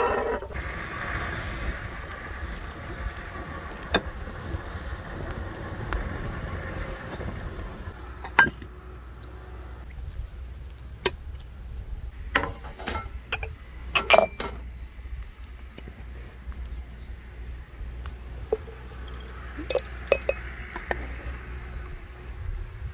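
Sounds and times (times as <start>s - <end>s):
glass jars clinking on metal: 12.4s - 14.6s, 18.6s - 20.5s
metal tray set on wooden table: 12.4s - 14.6s.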